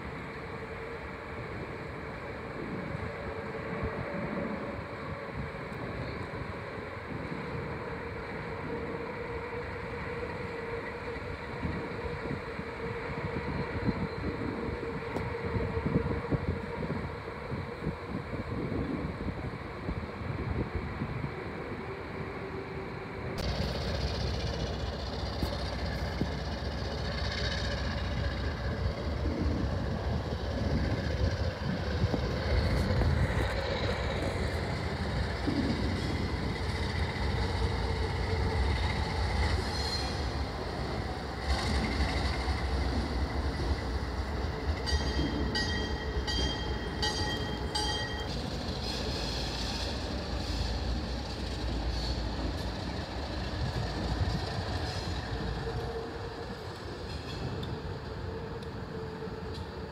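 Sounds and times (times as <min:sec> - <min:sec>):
diesel locomotive engine rumble: 0:00.0 - 0:59.9
railcars rolling on rails: 0:00.0 - 0:59.9
high metallic rings: 0:44.8 - 0:48.4.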